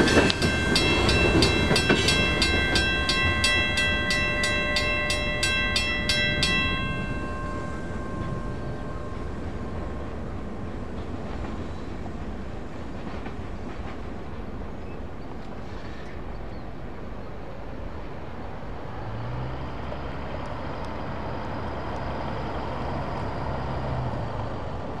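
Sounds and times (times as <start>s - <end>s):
freight train rumbling: 0.0s - 25.0s
vehicle engine hum: 18.5s - 25.0s.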